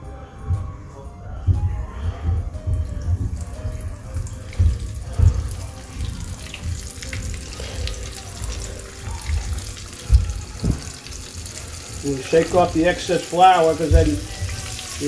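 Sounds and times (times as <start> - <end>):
low thumps: 0.4 - 11.2
shrimp frying in hot oil: 4.8 - 15.0.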